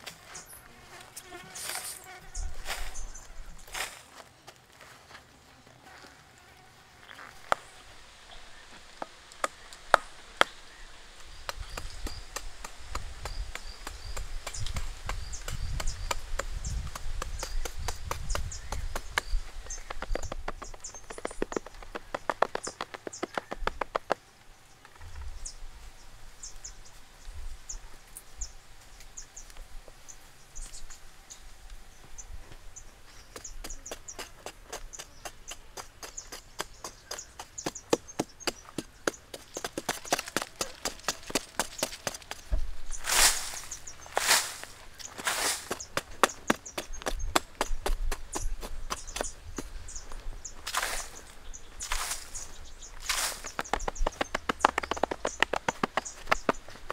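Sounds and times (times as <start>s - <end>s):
hand tool chopping dry soil: 11.4s - 24.2s, 33.2s - 56.9s.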